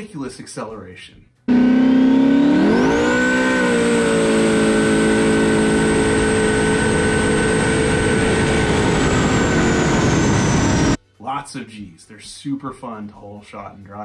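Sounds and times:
jet boat engine running at high revs: 1.5 - 11.0
thin high whine: 1.5 - 11.0.

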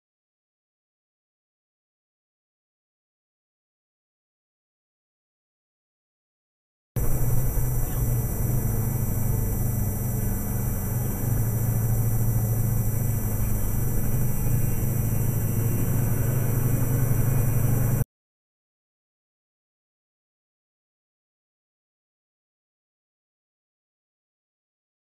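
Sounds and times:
engine and road rumble: 7.0 - 18.0
faint electronic whine: 7.0 - 18.0.

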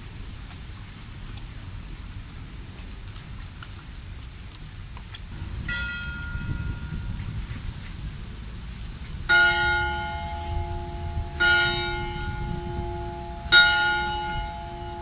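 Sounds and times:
bell ringing: 9.3 - 15.0.

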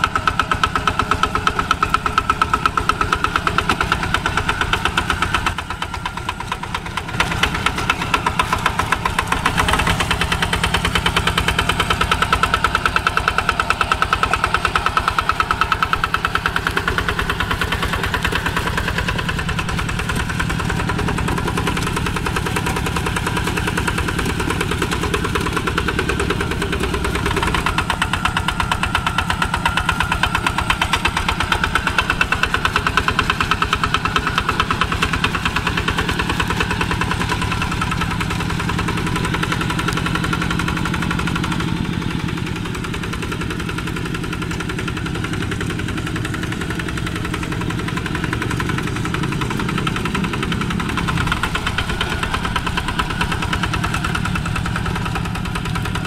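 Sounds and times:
diesel engine puttering: 0.0 - 56.0.

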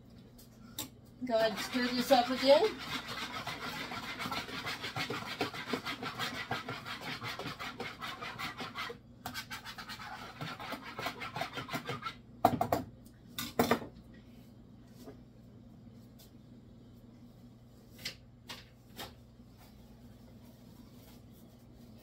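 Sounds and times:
whisk scratching plastic bowl: 1.3 - 12.2
whisk knocking on bowl: 1.4 - 8.8.

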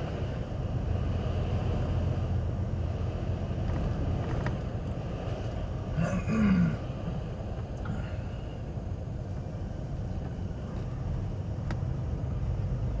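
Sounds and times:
truck engine and road rumble: 0.0 - 13.0.

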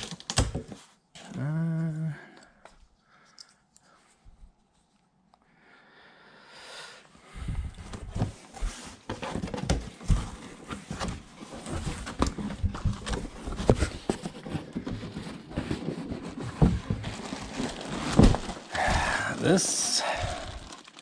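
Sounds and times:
cardboard box being opened: 7.8 - 21.0.

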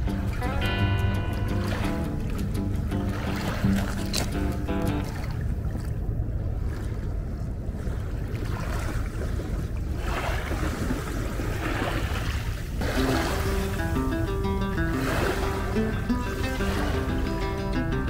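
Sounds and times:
wind rumbling on microphone: 0.0 - 18.0
small waves on pebble shore: 8.3 - 14.0, 14.7 - 17.7.

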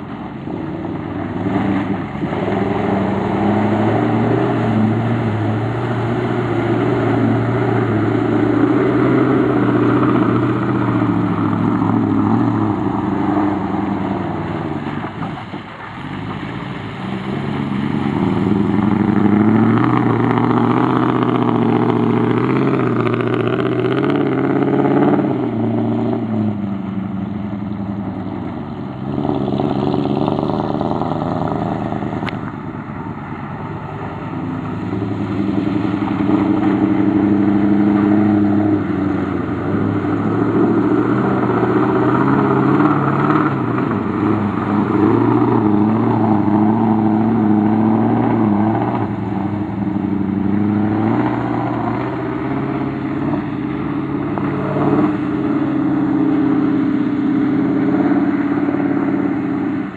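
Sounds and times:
truck engine revving: 0.0 - 59.9.

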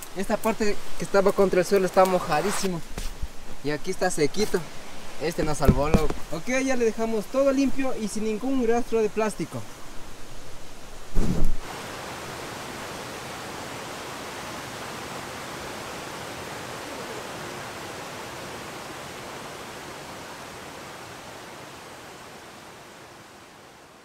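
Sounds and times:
river water rushing: 11.6 - 24.0.

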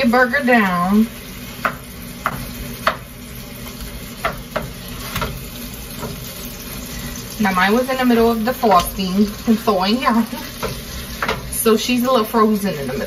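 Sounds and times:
meat sizzling: 0.0 - 13.0
spatula stirring meat in pan: 1.0 - 13.0
spatula tapping frying pan: 1.6 - 3.1, 3.7 - 6.4, 10.3 - 11.9.

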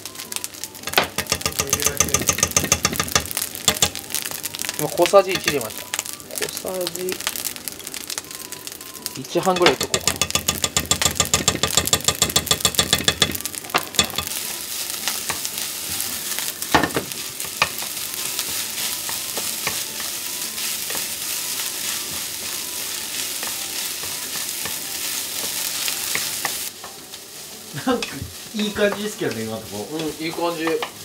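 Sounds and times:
rice sizzling in a frying pan: 0.0 - 31.0
spatula tapping a pan: 0.8 - 4.2, 5.3 - 5.8, 9.6 - 14.3, 16.7 - 27.0, 28.0 - 31.0.

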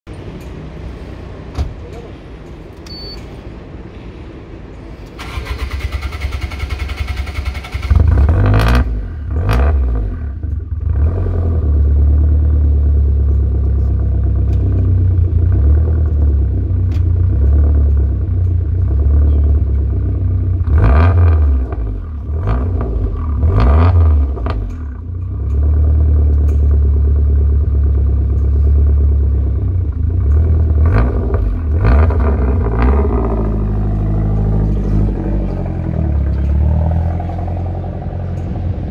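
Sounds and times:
car engine revving and idling: 5.0 - 38.9
engine starter cranking: 5.1 - 8.2.

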